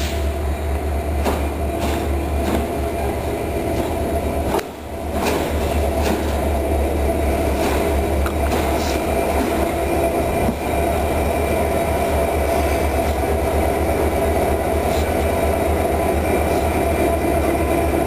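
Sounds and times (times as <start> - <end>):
locomotive engine low rumble: 0.0 - 18.0.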